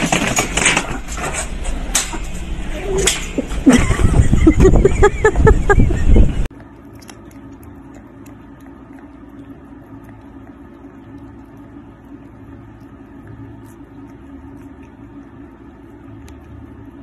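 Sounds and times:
low steady hum: 0.2 - 17.0
cat licking: 6.5 - 17.0.

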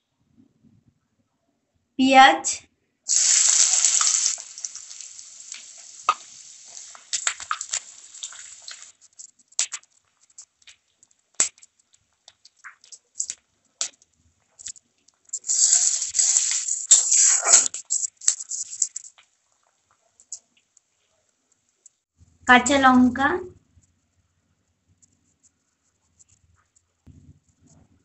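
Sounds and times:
onion sizzling in hot oil: 3.1 - 10.7, 15.3 - 19.2
spatula stirring in pan: 3.1 - 13.4, 14.5 - 19.2.

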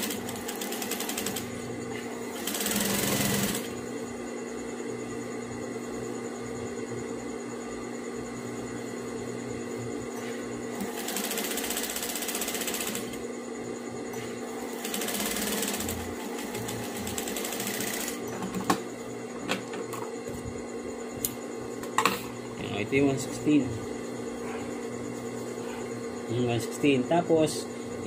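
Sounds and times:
sewing machine stitching: 0.0 - 1.4, 2.3 - 3.7, 10.8 - 13.2, 14.6 - 18.3.

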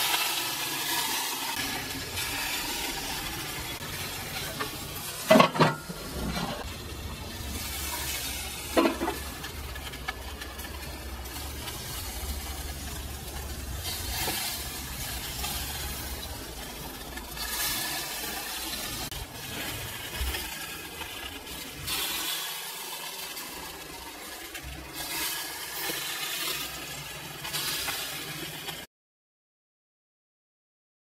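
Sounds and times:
chicken sizzling on a grill: 0.0 - 28.9.

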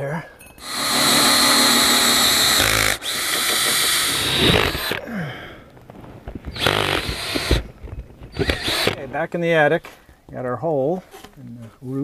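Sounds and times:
drill cutting with hole saw: 0.6 - 5.0, 6.5 - 7.6, 8.3 - 9.0.

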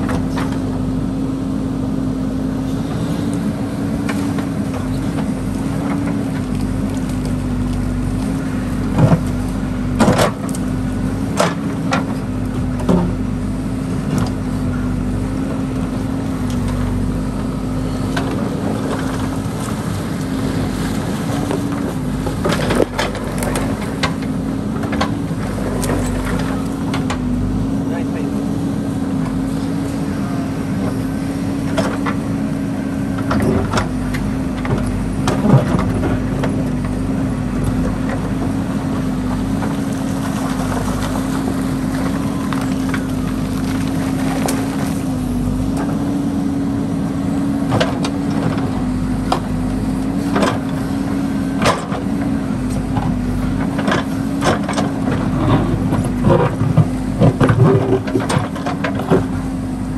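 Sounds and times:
diesel engine running: 0.0 - 59.9.

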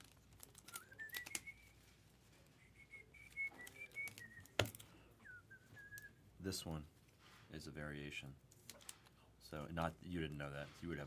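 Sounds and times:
soft human whistling: 0.6 - 6.2.

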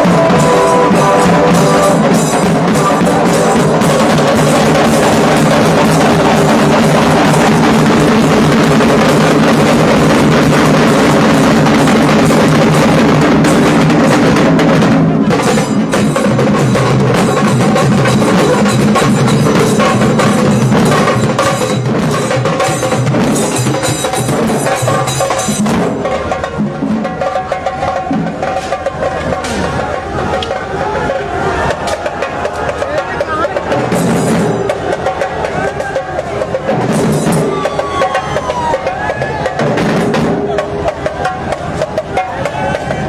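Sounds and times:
drum-heavy music: 0.0 - 43.0.

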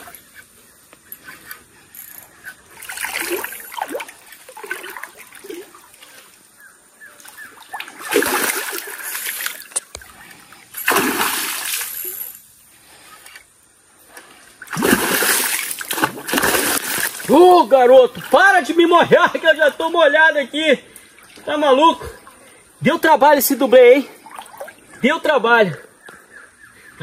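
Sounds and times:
trickling water: 1.0 - 20.2, 23.4 - 25.1
fish thrashing and splashing: 7.7 - 9.8, 10.8 - 12.2, 14.6 - 17.3.

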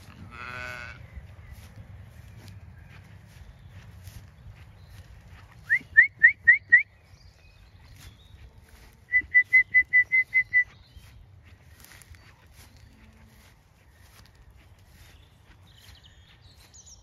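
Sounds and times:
person whistling: 5.6 - 6.9, 9.1 - 10.7.

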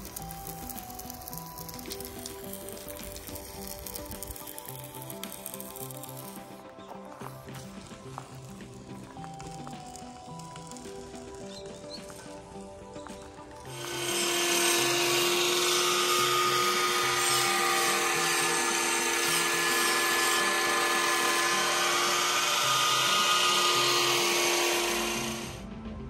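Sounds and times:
power tool hissing and humming: 0.0 - 25.7
background music: 0.0 - 26.0.

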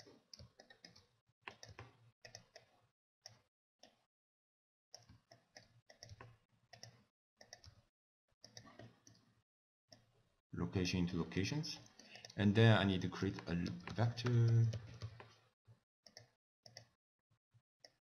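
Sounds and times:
computer mouse clicking: 0.0 - 2.7, 5.0 - 7.8, 8.4 - 9.3, 16.1 - 17.0.

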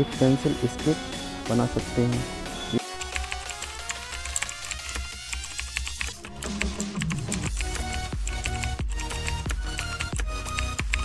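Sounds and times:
low thumping beat: 6.4 - 11.0.

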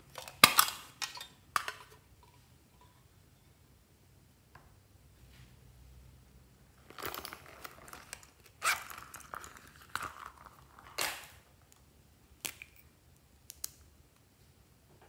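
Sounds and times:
zipper opening: 8.6 - 9.4.

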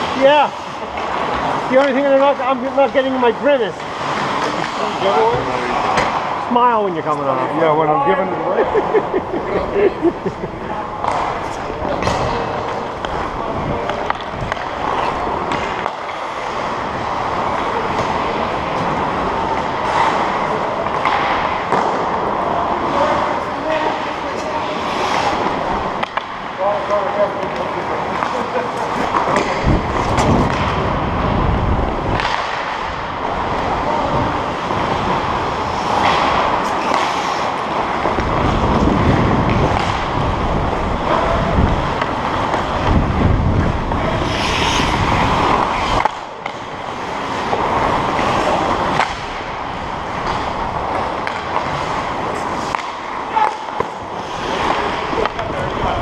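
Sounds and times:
hockey sticks and puck clacking: 0.0 - 6.9, 10.9 - 30.9, 32.0 - 56.0
skate blades scraping on ice: 13.8 - 31.3, 32.0 - 56.0.

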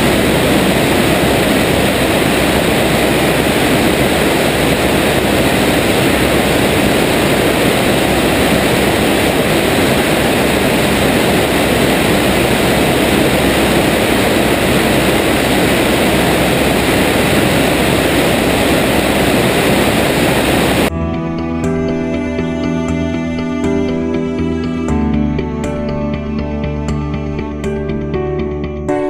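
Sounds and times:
wind rushing: 0.0 - 20.9
biplane engine and propeller: 0.0 - 21.0.

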